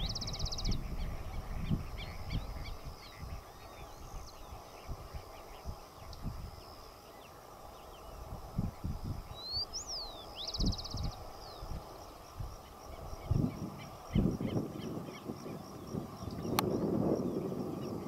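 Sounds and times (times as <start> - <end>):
wind buffeting microphone: 0.0 - 18.0
birds chirping and calling: 9.3 - 11.8.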